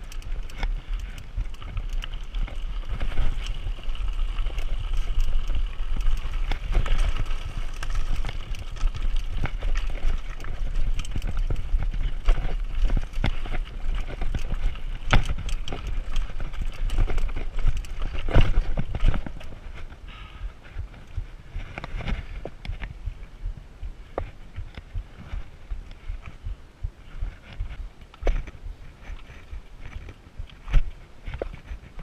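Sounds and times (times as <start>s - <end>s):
tyres crunching on stones: 0.0s - 20.0s
bike knocking and rattling: 0.0s - 32.0s
wind rumble on microphone: 0.0s - 32.0s.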